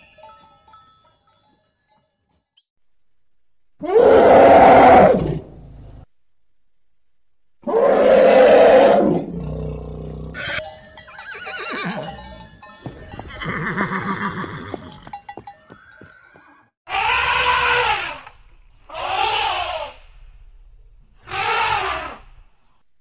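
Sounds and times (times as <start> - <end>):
loud animal call: 3.8 - 5.4, 7.6 - 10.6, 16.9 - 20.1, 21.2 - 22.4
horse whinnying: 10.3 - 10.6, 11.3 - 12.4, 13.2 - 15.2, 21.3 - 22.2.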